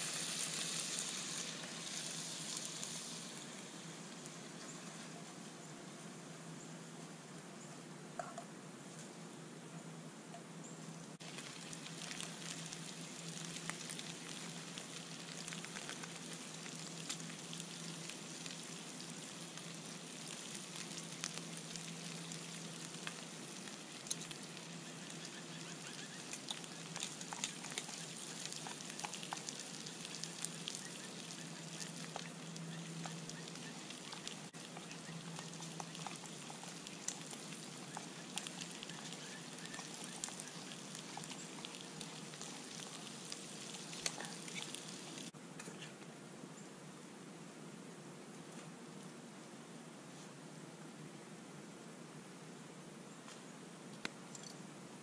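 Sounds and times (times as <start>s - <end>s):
meat sizzling in a skillet: 0.0s - 3.8s, 11.2s - 45.3s
crackles and pops: 0.0s - 5.6s, 10.3s - 46.1s, 53.2s - 54.6s.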